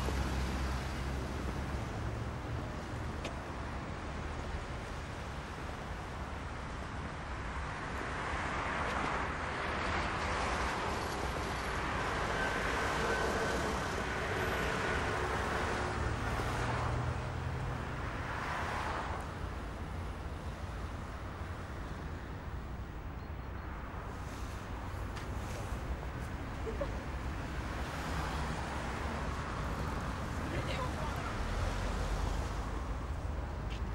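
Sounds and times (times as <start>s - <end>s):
vehicles passing: 0.0s - 33.9s.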